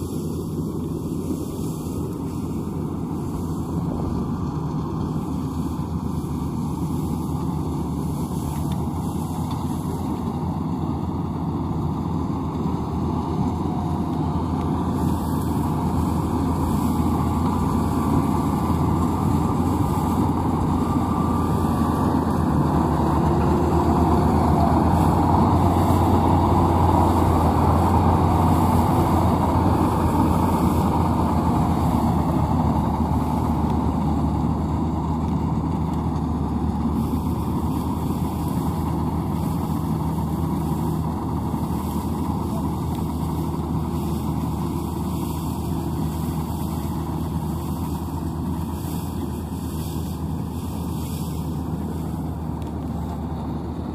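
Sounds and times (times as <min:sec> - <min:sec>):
combine harvester engine hum: 0:00.0 - 0:53.9.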